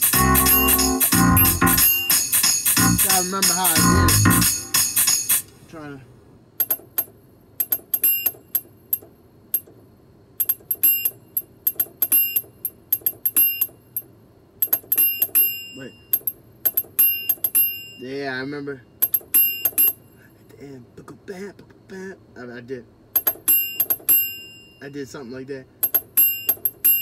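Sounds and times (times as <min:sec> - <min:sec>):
full music playing: 0:00.0 - 0:05.4
synthesizer bell-like percussion hits: 0:00.0 - 0:05.4.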